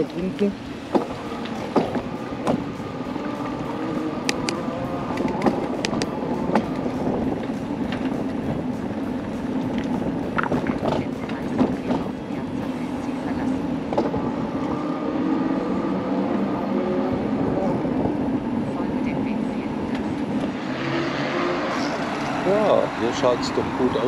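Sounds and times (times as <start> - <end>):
bike rattles and clicks: 0.0 - 12.3
bicycle tyre and wind noise: 0.0 - 12.7.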